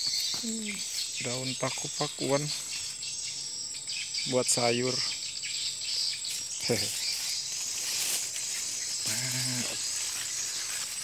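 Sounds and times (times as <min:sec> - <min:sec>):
insects chorus: 0:00.0 - 0:11.0
leaves and stems rustling: 0:05.9 - 0:11.0.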